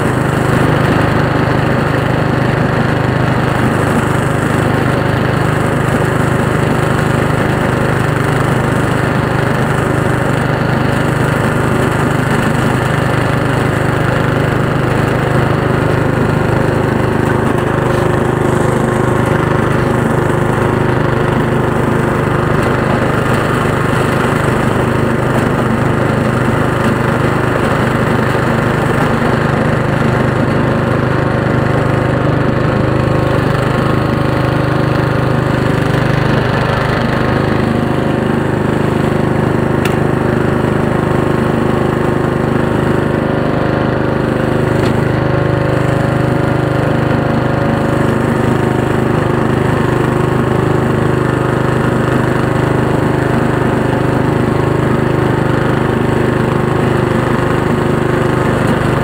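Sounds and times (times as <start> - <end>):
lawn tractor engine running: 0.0 - 59.0.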